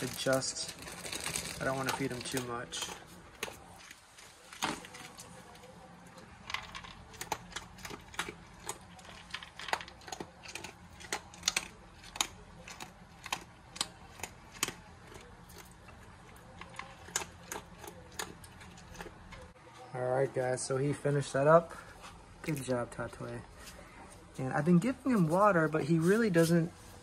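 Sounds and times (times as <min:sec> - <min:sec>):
dog crunching dry kibble: 0:00.0 - 0:19.5.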